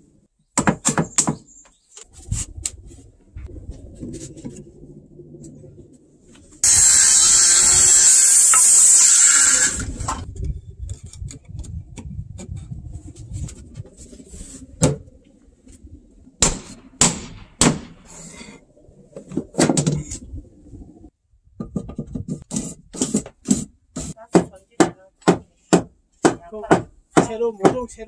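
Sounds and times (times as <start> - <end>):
circular saw cutting wood: 6.6 - 10.3.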